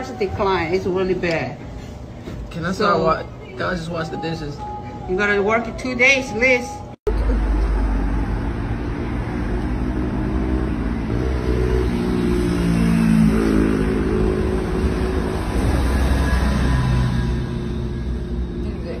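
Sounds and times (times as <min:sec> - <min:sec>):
low traffic rumble: 0:06.8 - 0:19.0
bus engine passing: 0:07.1 - 0:19.0.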